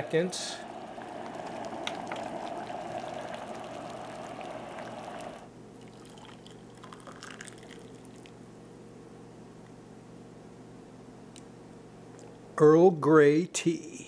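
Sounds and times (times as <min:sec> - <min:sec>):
boiled water hissing: 0:00.0 - 0:08.3
hot water pouring into mug: 0:00.0 - 0:08.4.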